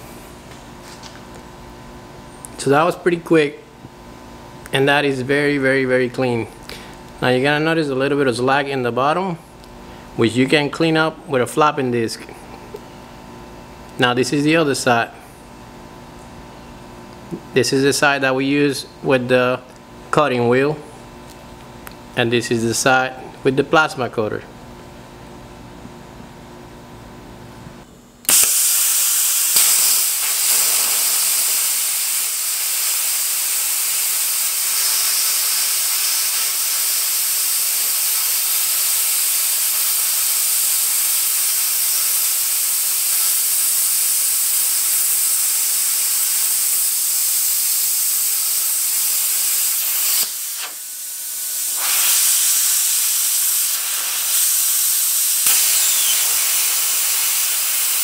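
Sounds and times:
plasma cutter hissing: 28.3 - 58.0.

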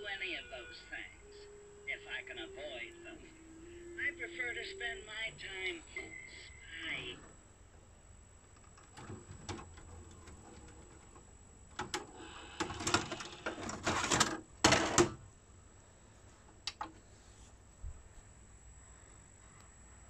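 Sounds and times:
cassette knocking when handled: 8.5 - 15.2
tape mechanism clicking and clattering: 8.5 - 15.2
plastic cassette scraping out: 8.6 - 15.2.

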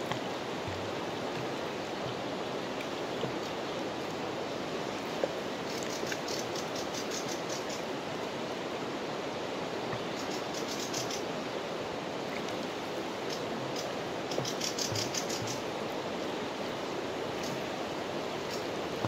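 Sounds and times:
river water rushing: 0.0 - 19.0
rapid faint high ticks: 5.2 - 7.8, 9.9 - 11.2, 13.2 - 15.7, 17.4 - 17.7, 18.4 - 18.7.

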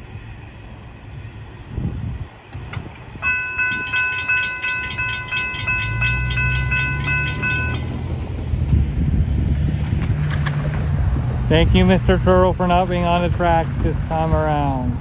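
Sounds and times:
low steady rumble: 0.0 - 15.0
railroad crossing bell ringing: 3.2 - 8.3.

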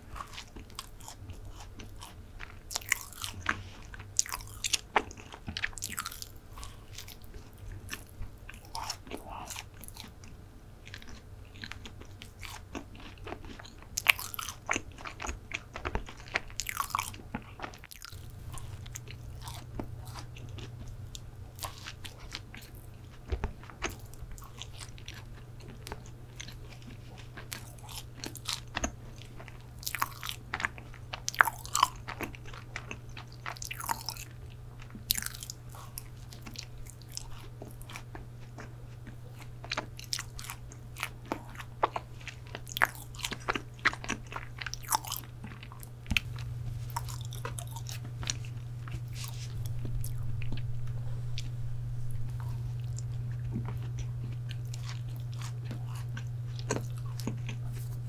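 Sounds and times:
chewing brownie close up: 0.0 - 58.0
steady low hum: 0.0 - 58.0.

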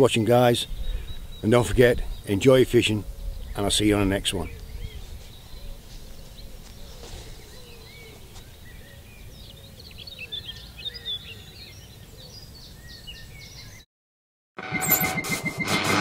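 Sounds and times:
small birds singing and chirping: 0.0 - 13.9.

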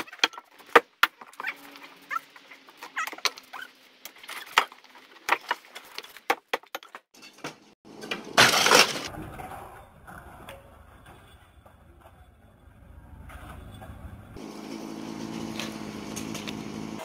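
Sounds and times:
debris clattering: 4.1 - 11.9
roof crashing down: 7.9 - 9.4.

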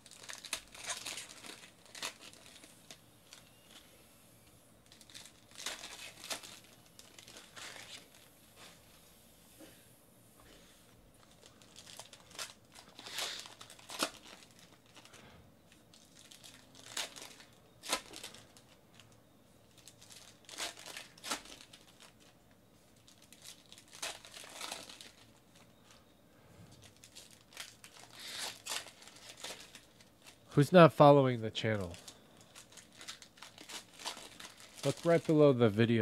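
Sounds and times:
foil wrappers tearing and crinkling: 0.0 - 3.8, 4.8 - 8.3, 11.2 - 15.2, 15.9 - 19.1, 19.7 - 22.4, 23.0 - 25.7, 26.8 - 30.6, 31.8 - 35.6.

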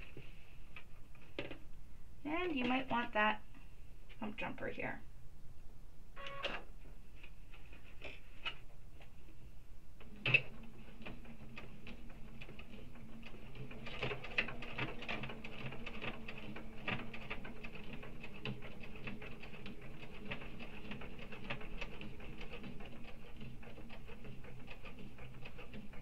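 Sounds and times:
sewing machine stitching: 10.1 - 26.0.

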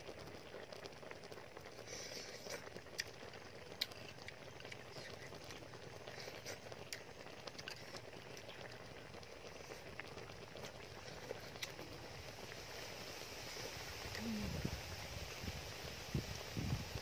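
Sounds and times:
person chewing food: 1.9 - 8.8, 9.4 - 11.8.

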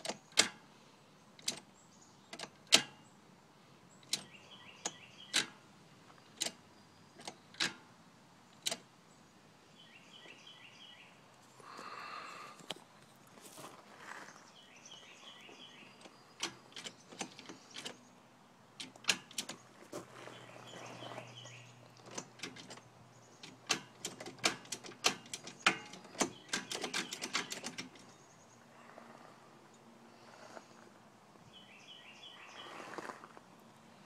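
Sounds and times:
faint birds chirping: 0.0 - 34.0
mechanical clicks and clacks: 18.8 - 19.6, 22.0 - 22.8, 23.4 - 28.1.

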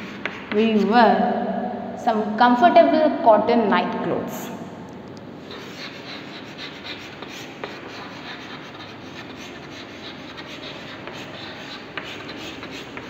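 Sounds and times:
chalk scratching on blackboard: 0.0 - 0.9, 5.4 - 13.0
chalk tapping on blackboard: 0.0 - 0.9, 5.5 - 13.0.

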